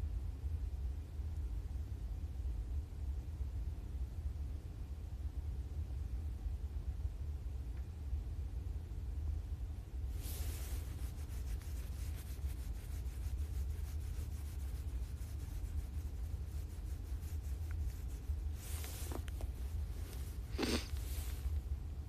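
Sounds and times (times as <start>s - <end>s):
steady low rumble: 0.0s - 22.0s
jacket collar rustling on microphone: 10.1s - 21.6s.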